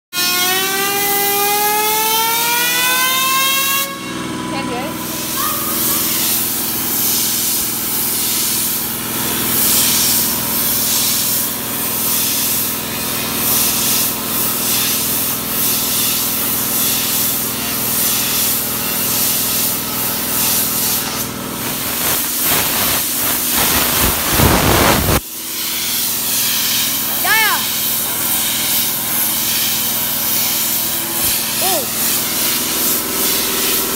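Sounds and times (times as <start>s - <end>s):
compressed air hissing: 5.0s - 12.6s, 18.1s - 33.9s.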